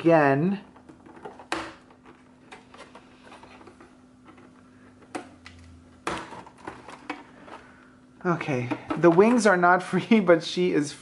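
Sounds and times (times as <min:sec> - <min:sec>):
packaging rustling: 0:00.7 - 0:07.9.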